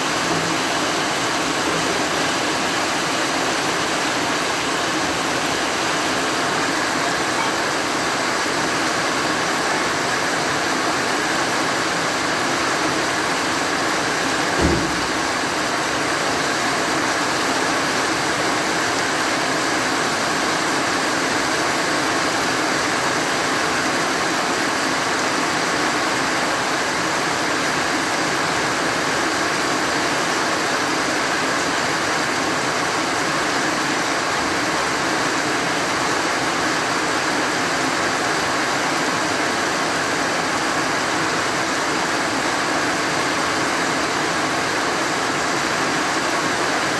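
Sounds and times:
heavy rain on grass and trees: 0:00.0 - 0:46.9
dull thump: 0:14.5 - 0:15.3.

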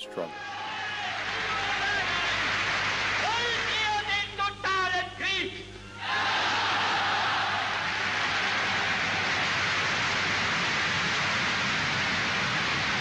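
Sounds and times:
crowd shouting and cheering: 0:00.0 - 0:02.1.

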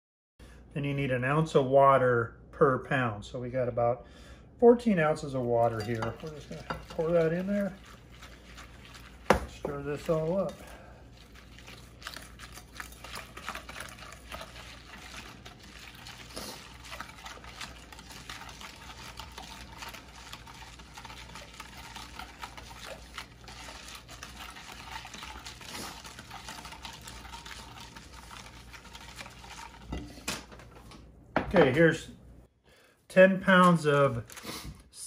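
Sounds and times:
whisk stirring liquid: 0:05.0 - 0:30.9.

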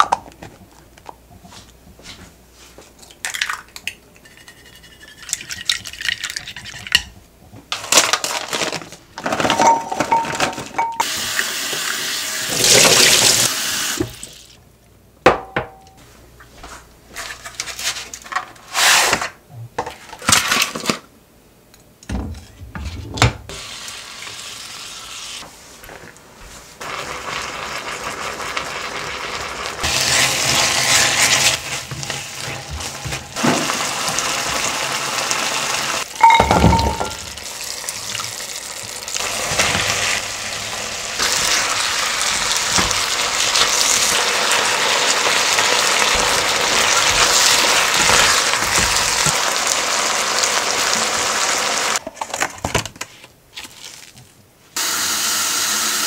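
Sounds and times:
meat sizzling in a pan: 0:37.4 - 0:52.0.

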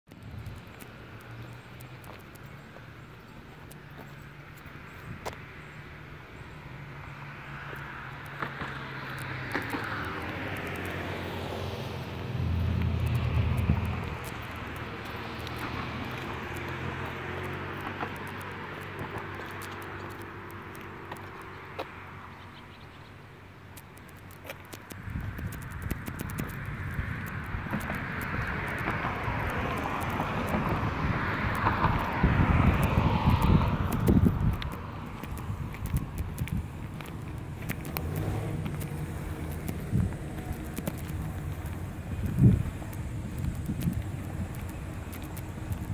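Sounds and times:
vehicle passing: 0:03.7 - 0:23.6, 0:24.2 - 0:45.9
wind buffeting microphone: 0:24.9 - 0:45.9
light clicks: 0:32.7 - 0:45.9.

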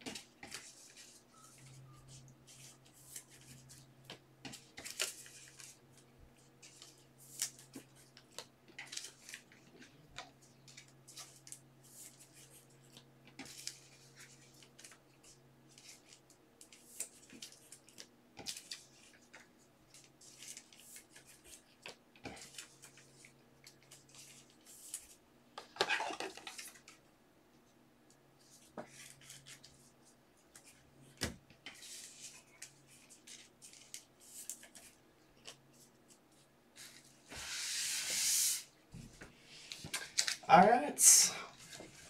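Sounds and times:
cloth rubbing tabletop: 0:37.2 - 0:38.6.

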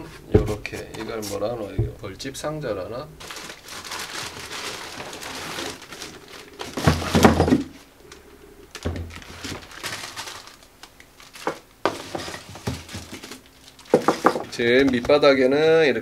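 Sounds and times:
cardboard rustling: 0:03.2 - 0:07.9, 0:08.8 - 0:15.4
plastic wrapping crinkling: 0:03.2 - 0:07.9, 0:08.7 - 0:15.4.

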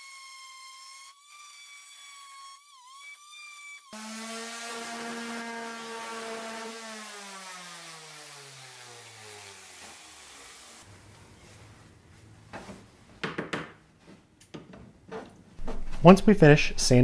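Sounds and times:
rotary sander whine: 0:00.0 - 0:10.9
sander motor winding down: 0:03.9 - 0:10.8.

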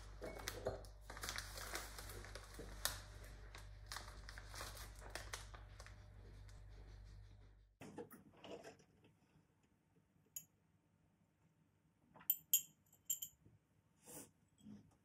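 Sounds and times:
glass clinking: 0:12.3 - 0:13.4.

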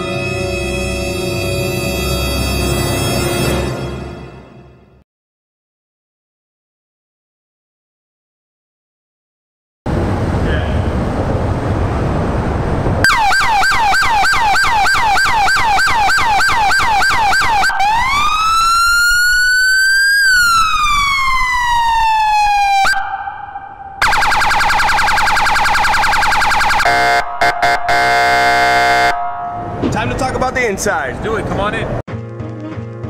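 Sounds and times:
police siren cycling tones: 0:13.0 - 0:29.8
buzzing siren horn blasts: 0:13.0 - 0:29.9.

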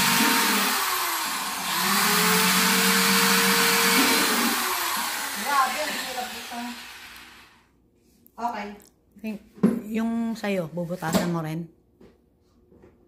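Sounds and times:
electric drill drilling plastic: 0:00.0 - 0:07.6.

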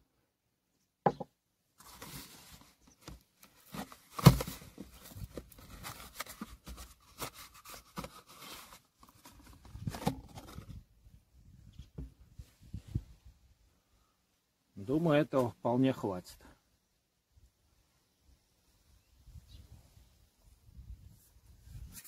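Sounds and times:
bottles knocking on workbench: 0:01.1 - 0:01.3
cardboard box rustling: 0:01.8 - 0:10.8.

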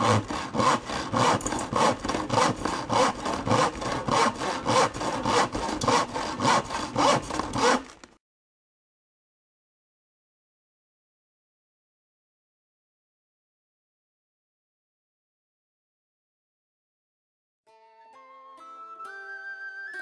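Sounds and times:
hand saw cutting wood: 0:00.0 - 0:08.2.

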